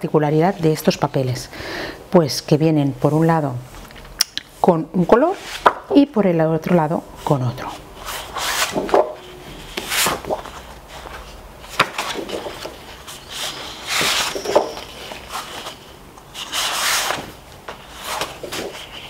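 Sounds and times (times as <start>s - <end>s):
cardstock sheets swishing: 8.0s - 15.8s.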